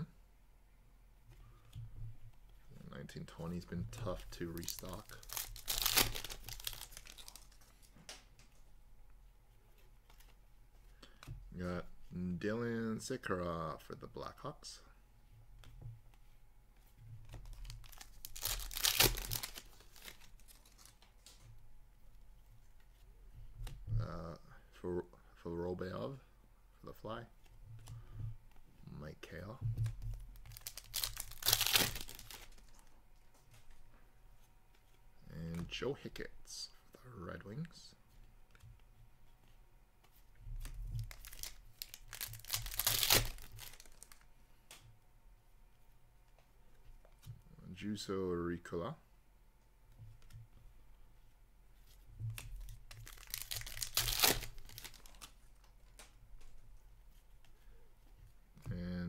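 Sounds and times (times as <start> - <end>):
cards clicking and rustling: 4.0 - 8.2, 17.3 - 21.4, 30.4 - 32.8, 52.6 - 56.5
foil wrapper tearing and crinkling: 4.4 - 7.7, 17.5 - 21.0, 30.4 - 32.8, 41.0 - 44.2, 52.4 - 55.4.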